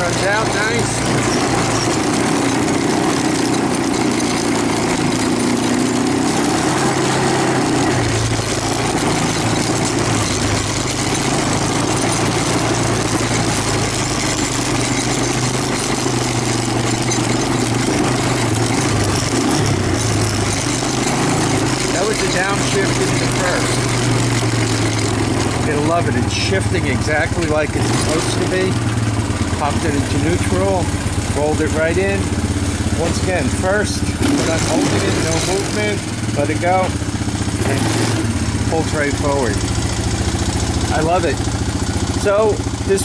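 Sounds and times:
quad bike engine running: 0:00.0 - 0:43.0.

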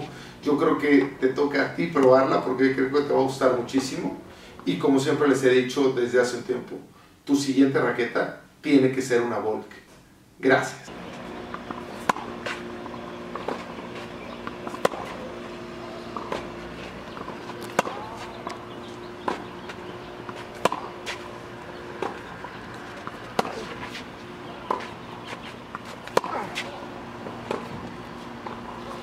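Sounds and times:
faint steady hum: 0:09.6 - 0:29.0
footsteps scuffing on clay: 0:10.9 - 0:29.0
tennis ball hit by racquets: 0:10.9 - 0:29.0.

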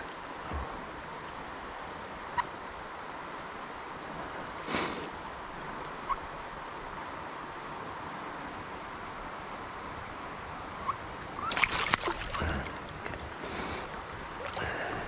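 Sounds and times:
stream water running: 0:00.0 - 0:15.0
fish splashing in net: 0:11.4 - 0:13.3.

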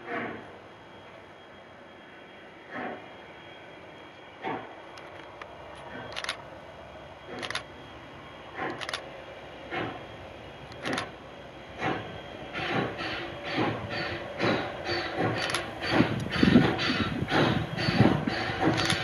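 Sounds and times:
steam locomotive chuffing: 0:00.0 - 0:19.0.

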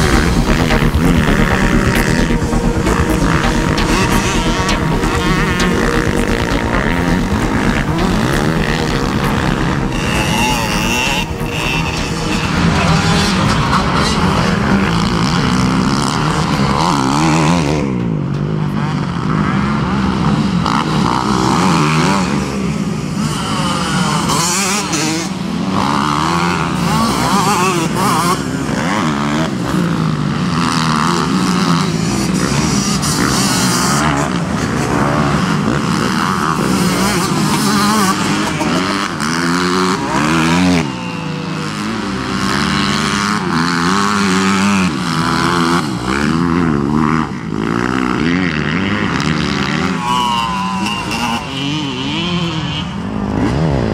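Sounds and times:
motorcycle engines revving: 0:00.0 - 0:53.9.

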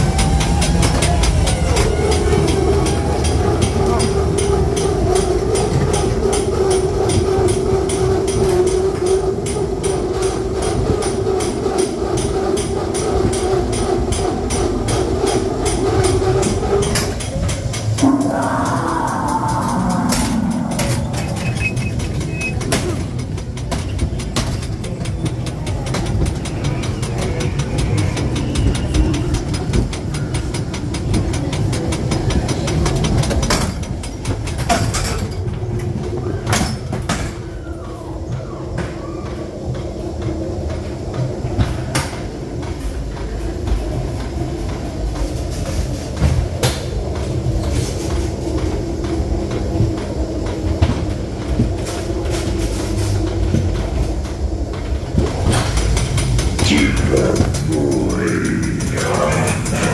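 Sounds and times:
train car rumbling on track: 0:00.0 - 0:59.9
steady hum: 0:02.3 - 0:23.8, 0:47.1 - 0:59.9.

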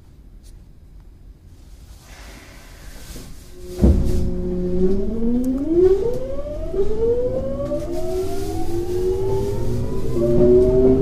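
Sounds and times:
train running gear rumble: 0:03.0 - 0:11.0
electric train motor whine: 0:03.5 - 0:11.0.

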